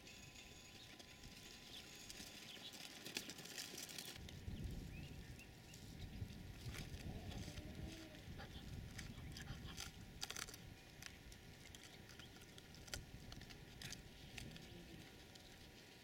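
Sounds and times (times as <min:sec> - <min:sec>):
pup gnawing on a log: 0:08.5 - 0:15.8.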